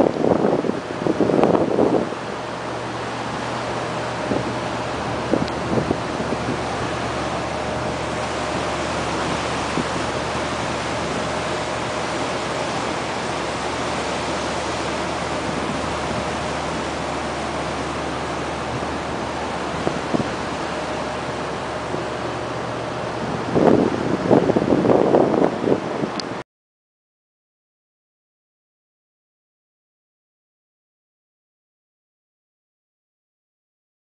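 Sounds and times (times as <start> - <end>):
low steady hum: 0.0 - 26.4
wind on microphone: 0.0 - 26.4.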